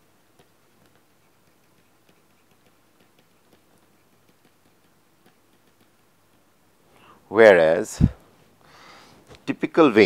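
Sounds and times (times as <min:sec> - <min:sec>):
stylus tapping on tablet: 0:00.3 - 0:06.5.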